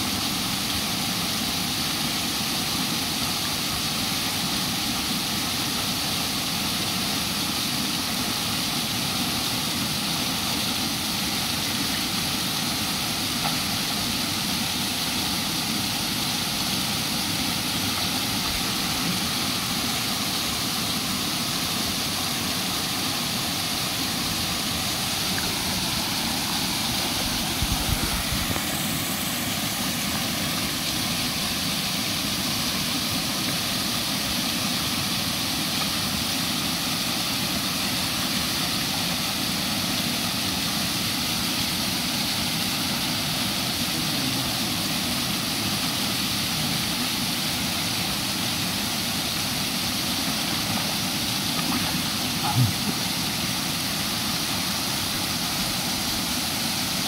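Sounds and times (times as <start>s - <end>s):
small waterfall rushing: 0.0s - 57.0s.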